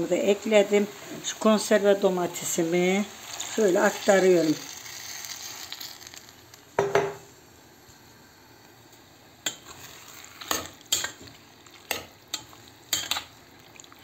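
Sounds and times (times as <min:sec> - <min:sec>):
faint sizzle of frying: 0:00.0 - 0:14.0
spoon clinking and scraping pot: 0:09.5 - 0:13.3
metal spoon stirring in pot: 0:09.5 - 0:14.0.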